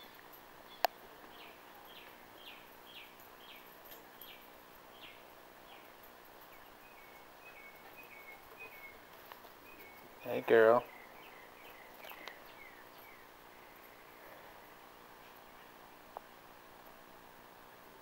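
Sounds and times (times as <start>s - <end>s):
outdoor background hiss: 0.0s - 18.0s
bird whistling: 6.9s - 9.0s.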